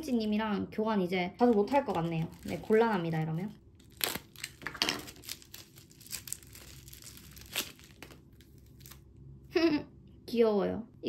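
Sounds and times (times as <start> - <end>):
plastic wrapping crinkling: 1.3 - 9.1.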